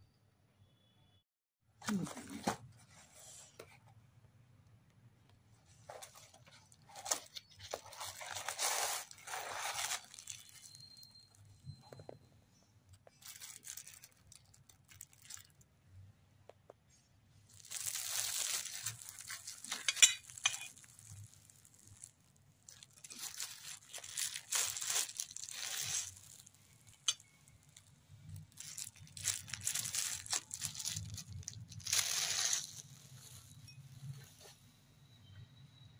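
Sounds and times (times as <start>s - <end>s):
cardboard packaging handled: 5.7s - 10.8s, 17.6s - 22.1s, 22.7s - 26.5s
plastic wrap crinkling and tearing: 5.9s - 11.0s, 13.0s - 15.7s, 17.5s - 33.7s.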